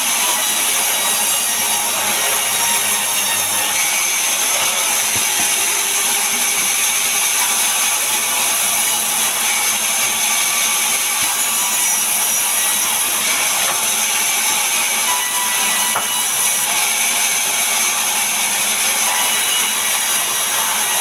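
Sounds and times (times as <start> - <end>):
band saw ripping a log: 0.0 - 8.7.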